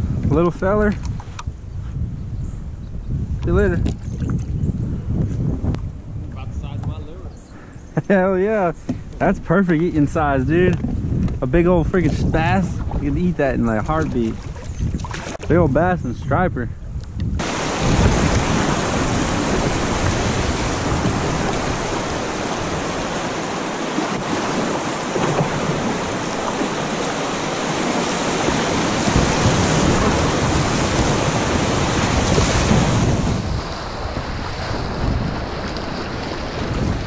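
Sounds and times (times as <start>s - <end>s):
wind buffeting microphone: 0.0s - 37.0s
whitewater rushing and splashing: 17.4s - 37.0s.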